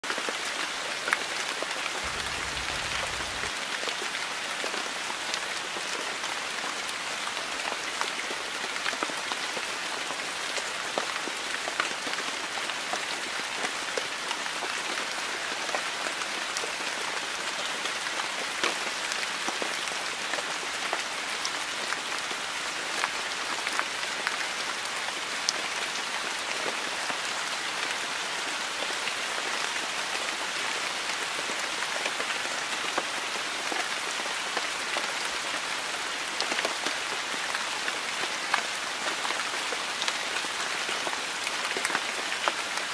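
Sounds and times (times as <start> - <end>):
steady hiss: 2.0 - 3.6
faint low rumble: 2.1 - 3.6.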